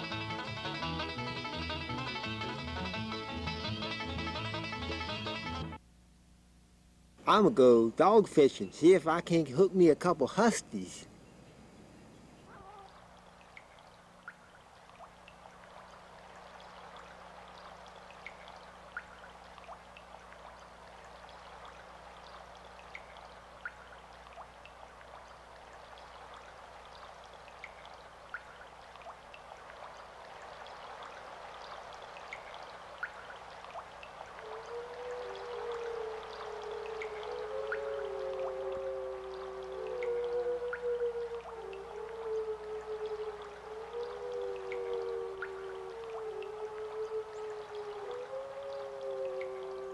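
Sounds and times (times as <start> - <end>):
low electrical hum: 5.8 - 49.9
running water rushing: 12.2 - 49.9.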